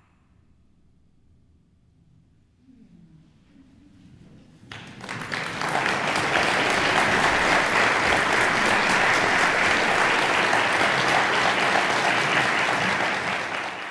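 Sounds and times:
audience applauding: 4.7s - 13.9s.

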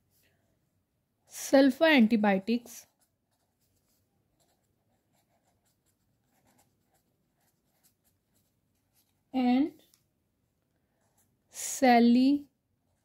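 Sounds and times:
ballpoint pen writing on paper: 4.3s - 9.1s.

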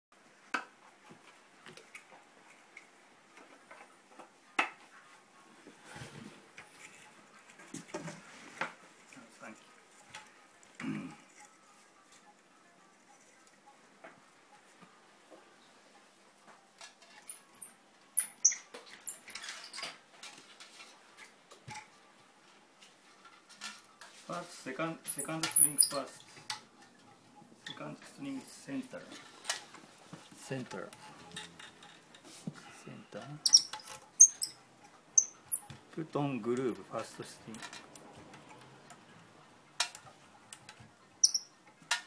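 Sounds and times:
wooden parts squeaking: 16.8s - 20.9s, 24.8s - 38.9s, 41.2s - 41.8s.

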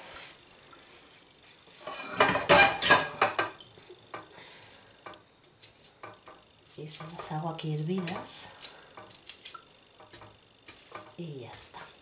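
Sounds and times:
pots and kitchenware clattering: 1.8s - 4.3s, 7.0s - 9.2s, 10.0s - 11.2s.

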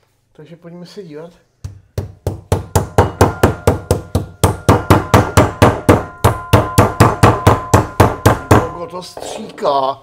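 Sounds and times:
meat mallet pounding cutlets: 1.6s - 8.8s.

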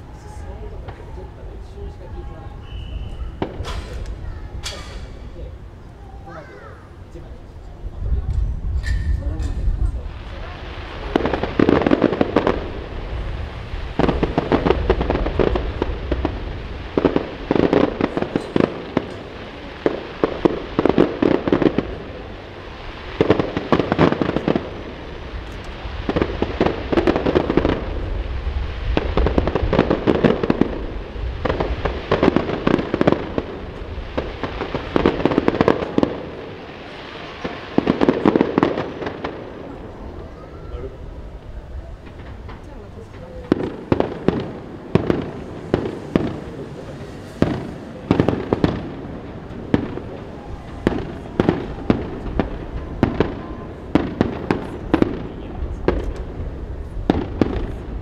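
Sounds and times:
fireworks bursting with crackling bangs: 0.0s - 58.0s
wind rumble on microphone: 7.1s - 19.2s, 24.3s - 36.0s, 39.7s - 58.0s.

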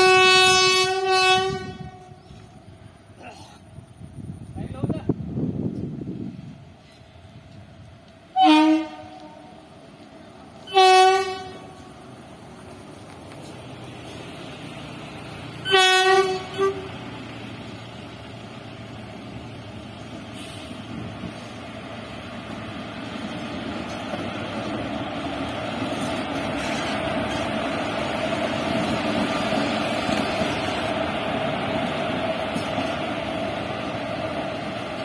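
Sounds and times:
train horn toots: 0.0s - 2.5s, 8.3s - 9.6s, 10.6s - 11.9s, 15.6s - 17.0s
electric locomotive passing: 0.0s - 35.0s.

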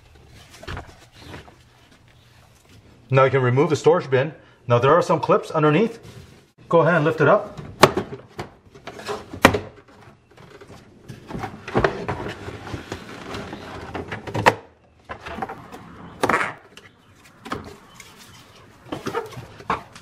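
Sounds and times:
plastic scraping and rubbing: 8.8s - 20.0s.

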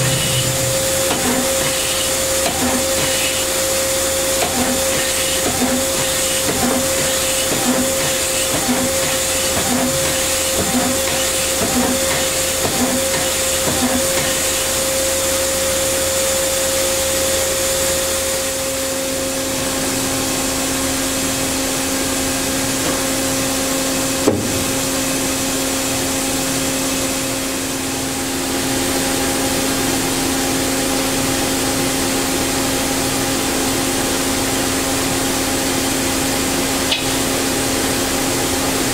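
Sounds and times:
pulsing beat: 0.0s - 1.8s
lathe machine whir and hum: 0.0s - 38.9s.

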